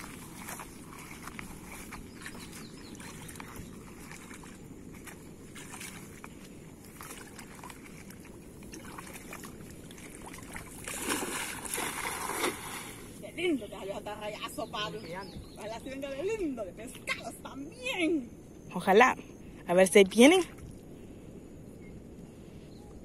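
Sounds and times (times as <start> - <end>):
water splashing: 0.0 - 13.6
person wading through water: 0.0 - 13.8.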